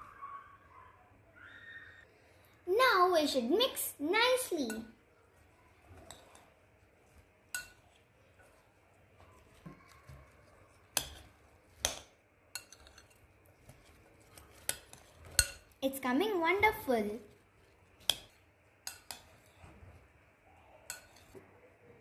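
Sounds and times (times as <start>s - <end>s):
metal spoon clinking glass bowl: 7.5s - 7.8s, 11.0s - 13.2s, 14.6s - 15.7s, 20.9s - 21.3s.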